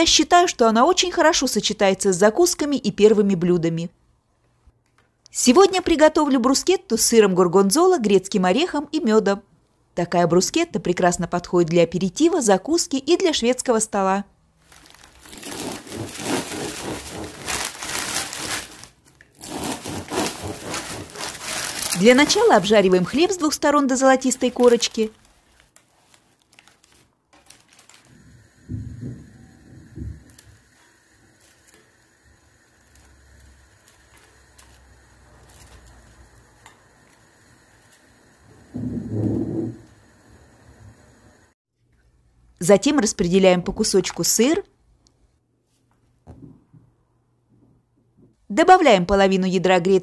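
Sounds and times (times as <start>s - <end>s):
paper wrapping crinkling: 14.6s - 28.2s, 32.7s - 36.2s
knife sawing through crusty bread: 15.4s - 17.6s, 19.4s - 21.6s.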